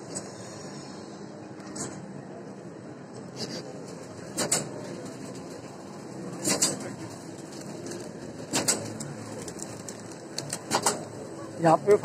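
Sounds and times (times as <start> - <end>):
mechanical hum: 0.0 - 12.0
packaging machine double clack: 8.4 - 9.0.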